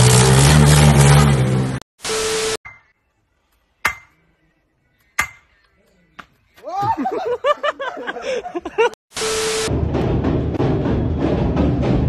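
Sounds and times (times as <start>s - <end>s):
hammer clanging on metal post: 3.8s - 4.2s, 5.2s - 5.6s.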